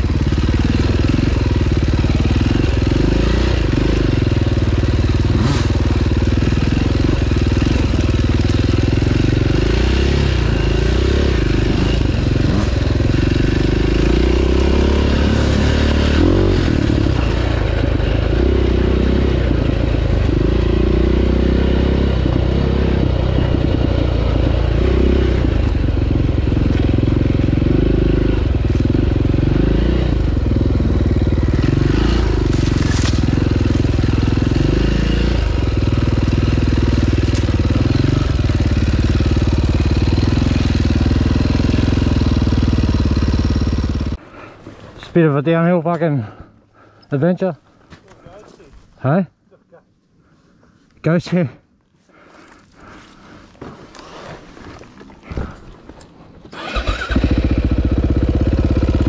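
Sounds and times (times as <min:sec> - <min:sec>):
motorcycle engine revving: 0:00.0 - 0:44.2, 0:56.4 - 0:59.0.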